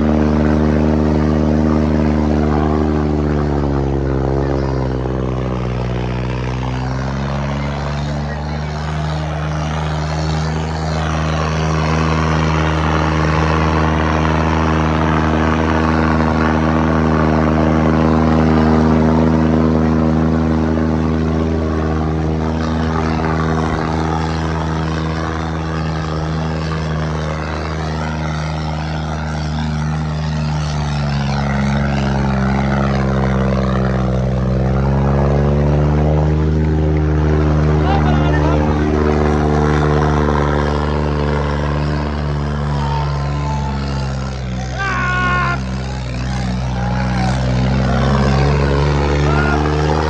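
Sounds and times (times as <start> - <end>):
tractor diesel engine running: 0.0 - 50.0.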